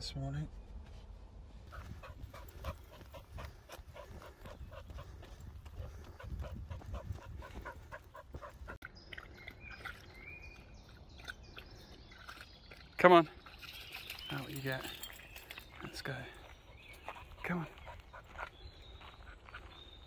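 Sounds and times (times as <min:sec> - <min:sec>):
running footsteps on sandy path: 0:01.6 - 0:08.8, 0:14.7 - 0:20.0
heavy panting: 0:01.7 - 0:08.8
dog splashing in puddle: 0:08.4 - 0:11.3.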